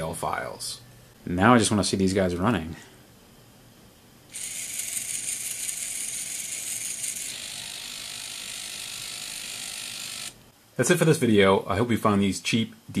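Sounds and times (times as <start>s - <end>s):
servos whirring: 4.3s - 10.4s.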